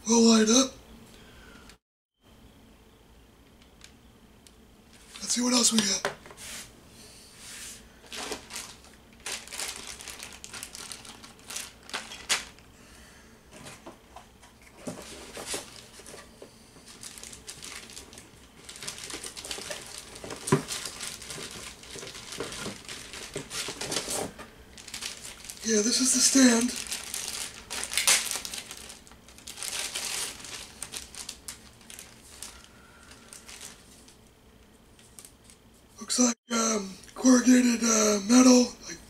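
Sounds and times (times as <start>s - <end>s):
packaging rustling in cardboard box: 8.0s - 12.6s, 14.7s - 34.2s
crinkling and scraping: 8.0s - 12.7s, 13.5s - 36.0s.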